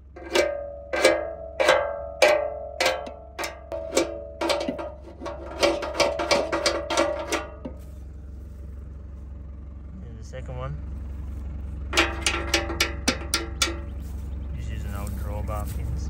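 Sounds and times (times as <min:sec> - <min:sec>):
tractor idling hum: 0:00.0 - 0:16.0
steel bar striking metal blade: 0:00.2 - 0:04.9.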